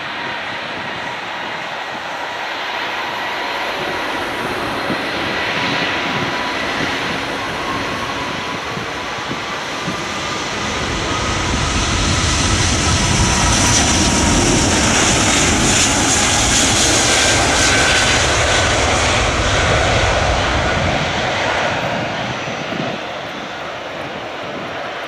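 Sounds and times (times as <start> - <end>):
faint jet whine: 0.0 - 25.0
jet engine roar: 0.0 - 25.0.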